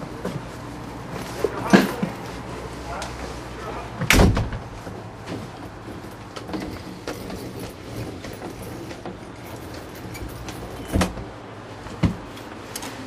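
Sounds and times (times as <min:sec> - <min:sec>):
truck door slamming: 0:04.0 - 0:04.8.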